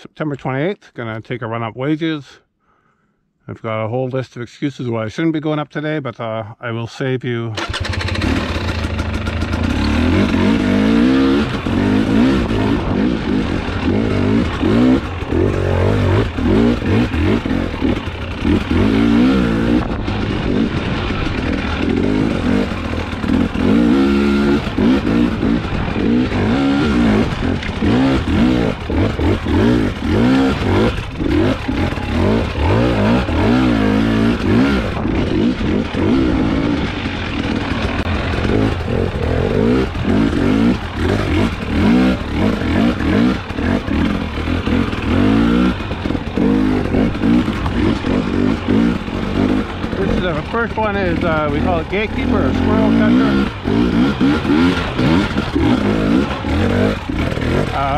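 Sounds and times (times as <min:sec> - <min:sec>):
dirt bike engine revving: 0:07.6 - 0:57.9.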